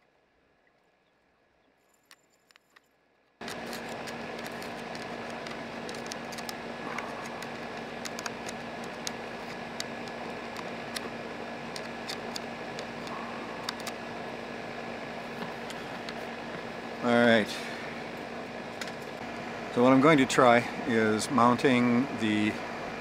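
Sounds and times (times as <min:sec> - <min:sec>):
steady hum: 0:00.0 - 0:23.0
screwdriver scraping and clicking: 0:02.0 - 0:11.1, 0:11.7 - 0:14.0.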